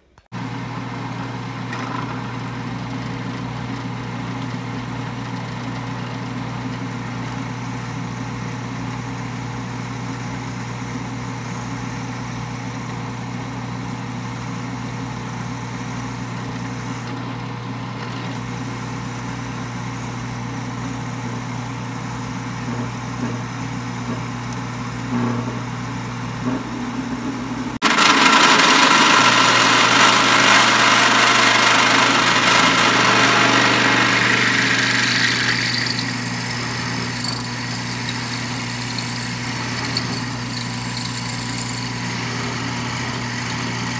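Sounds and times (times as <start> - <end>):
drill press boring into steel: 27.9 - 43.9
motor hum: 31.0 - 43.9.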